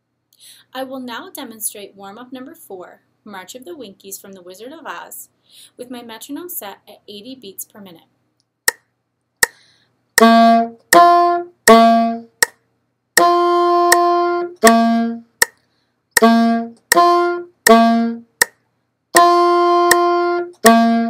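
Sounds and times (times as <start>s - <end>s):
saxophone playing: 10.2s - 12.4s, 13.2s - 15.3s, 16.2s - 18.4s, 19.2s - 21.0s
metronome clicking: 10.2s - 12.6s, 13.2s - 18.6s, 19.2s - 21.0s.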